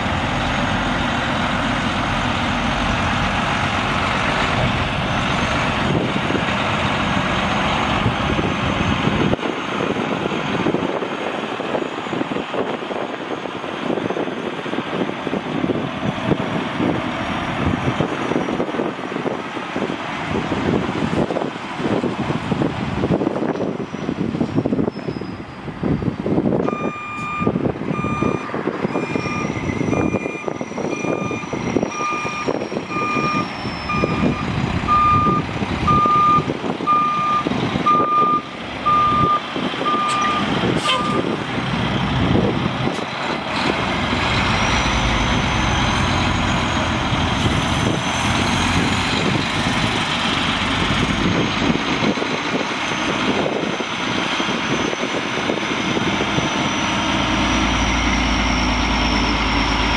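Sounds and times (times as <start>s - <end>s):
diesel truck engine running: 0.0s - 59.9s
reverse alarm beeping: 26.7s - 41.3s.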